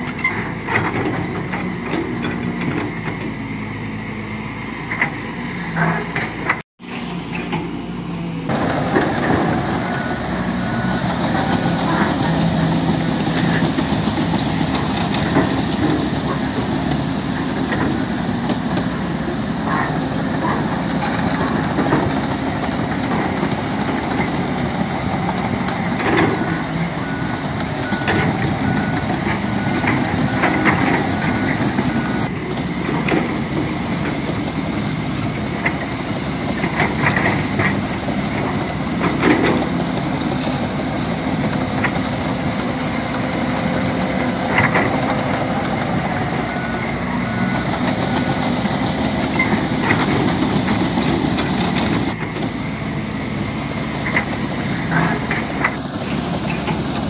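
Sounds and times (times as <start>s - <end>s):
heavy diesel engines working: 0.0s - 57.0s
reversing alarm beeping: 26.3s - 32.3s, 46.1s - 48.4s.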